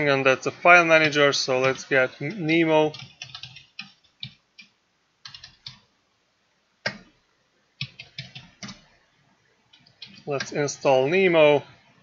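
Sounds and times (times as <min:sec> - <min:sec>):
computer keyboard typing: 0:01.6 - 0:05.9, 0:06.8 - 0:07.1, 0:07.8 - 0:08.9, 0:09.7 - 0:10.6.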